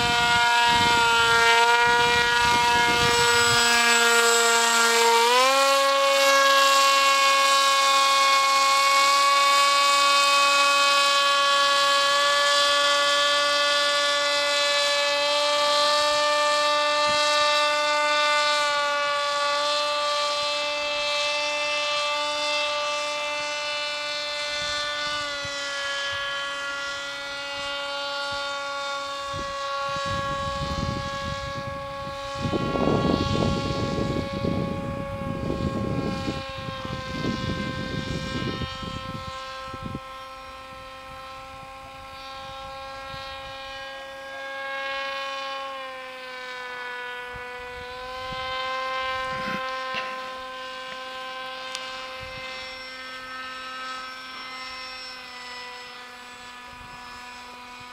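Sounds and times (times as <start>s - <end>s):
wind rumbling on microphone: 0.0s - 11.4s, 24.2s - 53.5s, 56.4s - 57.9s
paraglider engine and propeller droning: 0.0s - 57.9s.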